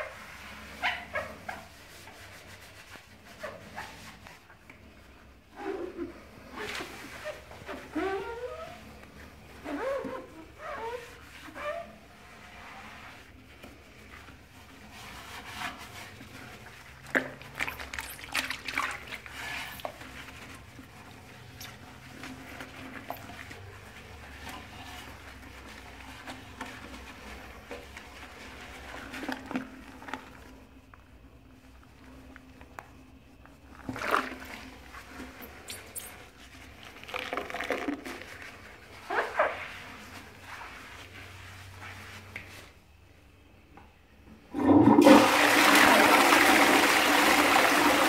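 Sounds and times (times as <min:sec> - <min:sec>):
scrubbing a toilet bowl: 0:00.0 - 0:43.5, 0:44.4 - 0:48.0
toilet flushing: 0:44.4 - 0:48.0.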